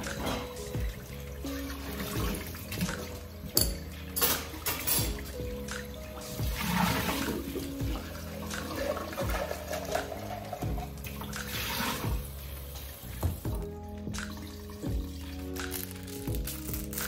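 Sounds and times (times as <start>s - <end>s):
faucet running into sink: 0.2s - 13.6s.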